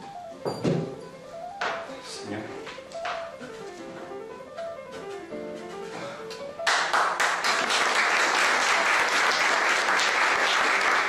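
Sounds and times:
soft music with plucked notes: 0:00.0 - 0:06.9
applause: 0:06.6 - 0:11.0.

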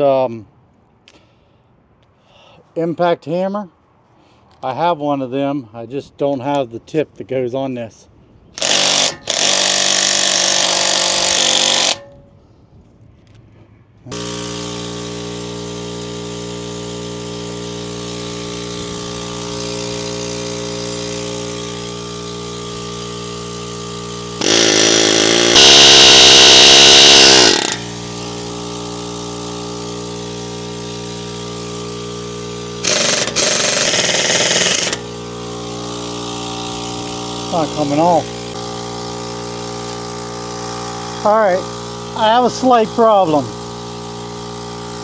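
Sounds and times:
pneumatic air hammer bursts: 0:08.6 - 0:12.2, 0:14.1 - 0:42.4
machine hum: 0:14.1 - 0:45.0.

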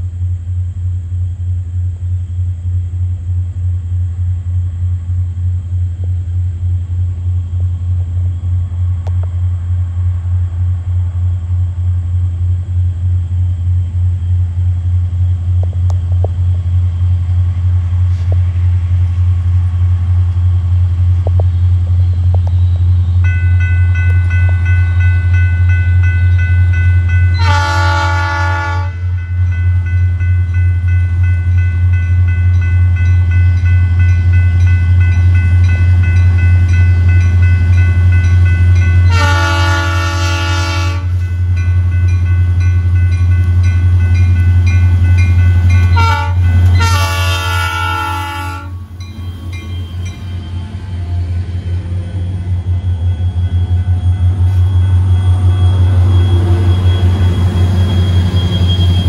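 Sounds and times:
diesel locomotive rumbling: 0:00.0 - 0:59.0
locomotive multi-chime horn: 0:23.2 - 0:50.8, 0:53.0 - 0:59.0.

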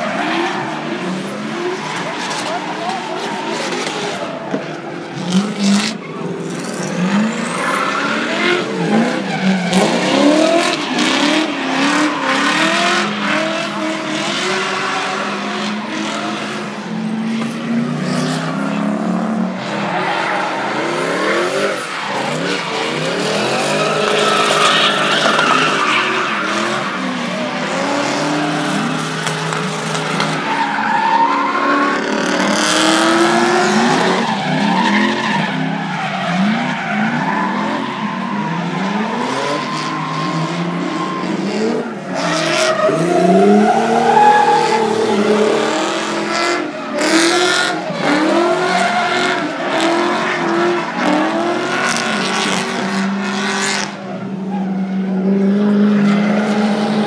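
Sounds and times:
car engines revving: 0:00.0 - 0:57.0
tyres screeching: 0:19.6 - 0:52.7.

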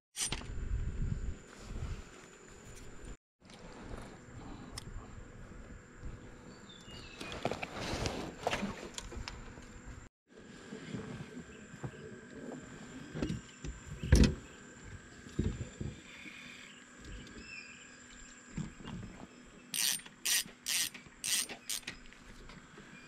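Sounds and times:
spinning reel whirring: 0:19.7 - 0:22.0.

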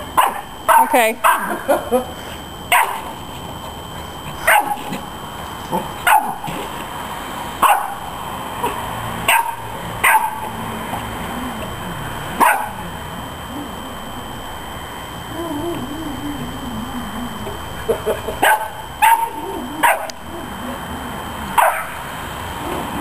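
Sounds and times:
puppy barking: 0:00.2 - 0:01.5, 0:02.7 - 0:03.0, 0:04.4 - 0:05.0, 0:06.0 - 0:06.5, 0:07.6 - 0:08.0, 0:08.6 - 0:10.5, 0:12.4 - 0:12.8, 0:18.4 - 0:20.2, 0:21.6 - 0:22.0.

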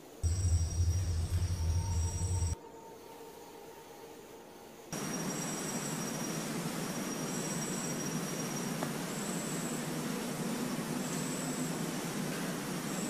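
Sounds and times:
steady hiss: 0:00.0 - 0:03.2
night insects calling: 0:00.2 - 0:04.0, 0:05.0 - 0:09.9.

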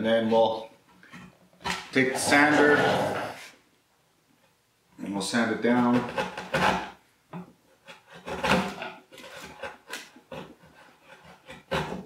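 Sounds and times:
chisel scraping wood: 0:01.0 - 0:03.6, 0:05.6 - 0:12.0.

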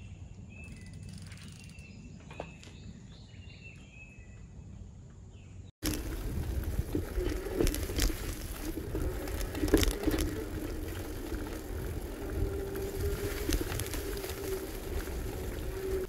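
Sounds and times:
bicycle tyre rumble: 0:05.8 - 0:16.0
electric motor hum: 0:05.8 - 0:16.0
wind on microphone: 0:05.8 - 0:16.0.

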